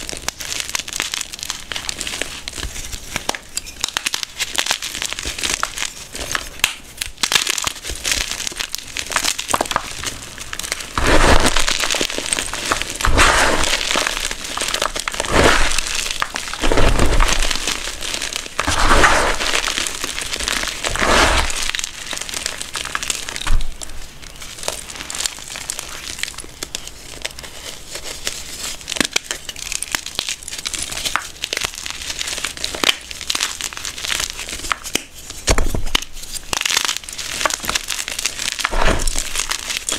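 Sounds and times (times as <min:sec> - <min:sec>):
chalk crunching in hands: 0:07.5 - 0:23.4, 0:24.4 - 0:39.9.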